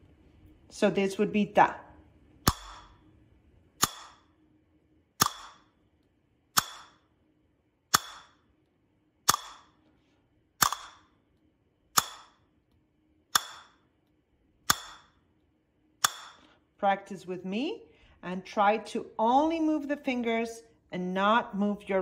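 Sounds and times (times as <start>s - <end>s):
castanet clicks: 5.2s - 5.7s, 9.3s - 9.7s, 10.6s - 11.1s, 13.3s - 13.8s, 16.0s - 16.5s.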